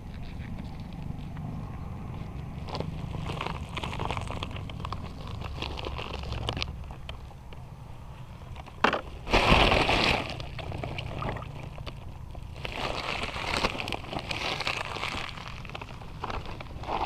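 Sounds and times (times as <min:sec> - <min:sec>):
plastic bag crinkling and rustling: 0:02.6 - 0:07.3, 0:09.1 - 0:17.0.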